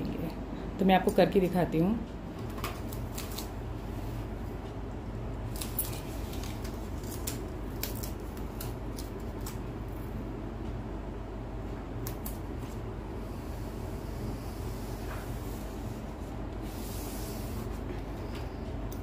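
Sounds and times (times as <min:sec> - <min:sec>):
steady low hum: 0:00.0 - 0:19.0
tape crackling and clicking: 0:02.1 - 0:03.7, 0:04.6 - 0:10.8, 0:11.7 - 0:12.9.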